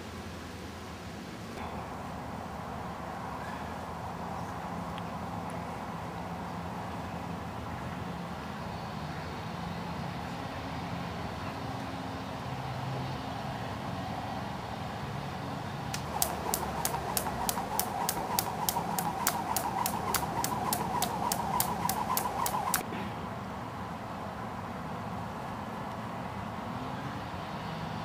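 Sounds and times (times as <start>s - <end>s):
rope whirring swish: 15.9s - 22.9s
distant traffic hum: 15.9s - 23.1s
skipping rope slapping tarmac: 16.0s - 22.8s.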